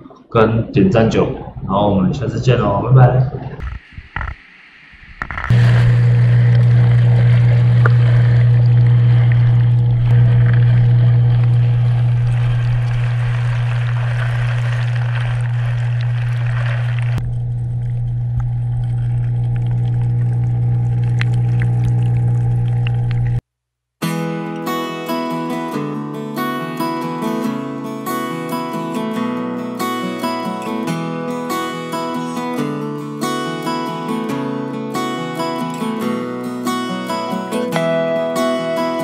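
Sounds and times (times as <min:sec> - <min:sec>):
water bubbling and rushing: 0:00.0 - 0:02.0, 0:03.1 - 0:23.4
aquarium pump humming: 0:05.5 - 0:23.4.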